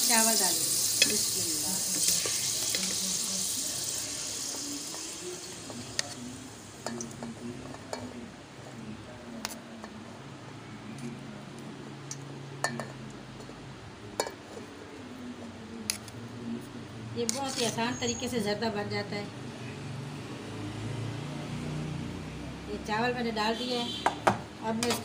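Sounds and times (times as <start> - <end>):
rice sizzling in hot fat: 0.0 - 8.1.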